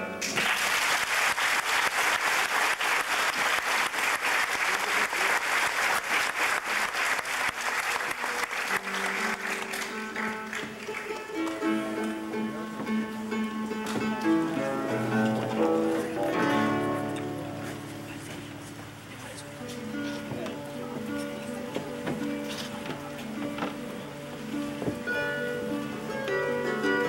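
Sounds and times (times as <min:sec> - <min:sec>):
audience applause: 0:00.2 - 0:12.2
harp plucked notes: 0:08.8 - 0:27.0.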